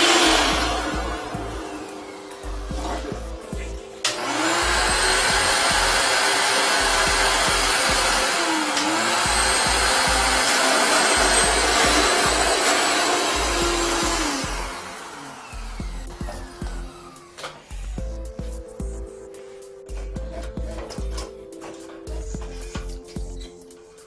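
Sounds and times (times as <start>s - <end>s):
wet dry vacuum sucking water: 0.0s - 17.1s.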